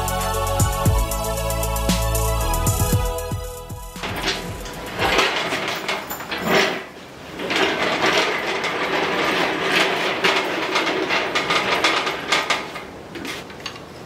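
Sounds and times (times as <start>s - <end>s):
steel parts knocking and scraping: 3.9s - 14.0s
engine crane rolling on concrete: 4.0s - 14.0s.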